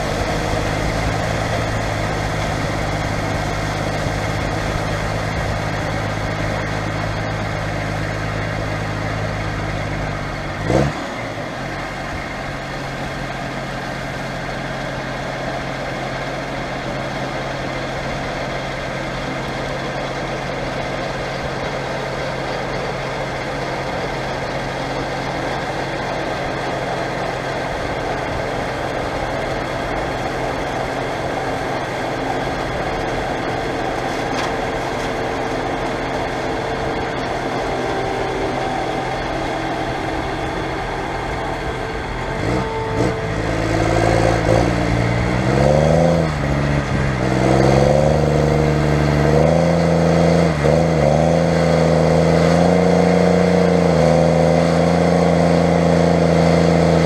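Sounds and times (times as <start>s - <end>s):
diesel engine running: 0.0s - 57.0s
engine rising sweep: 25.5s - 57.0s.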